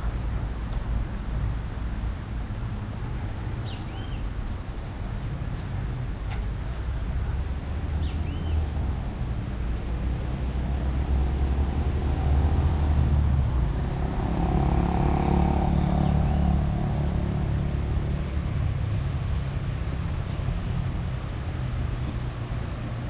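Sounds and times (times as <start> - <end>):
steady low rumble: 8.6 - 23.0
vehicle engine passing by: 9.9 - 22.9.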